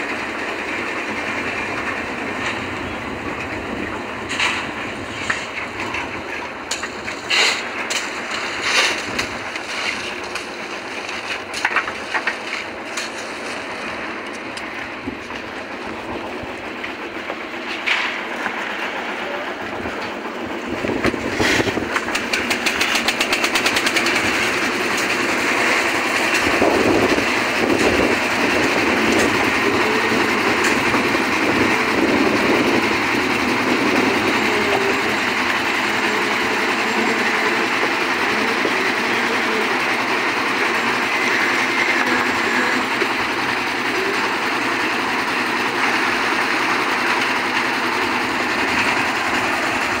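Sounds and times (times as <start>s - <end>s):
construction machinery hum and clatter: 0.0s - 50.0s
fast even rattle: 21.7s - 24.6s.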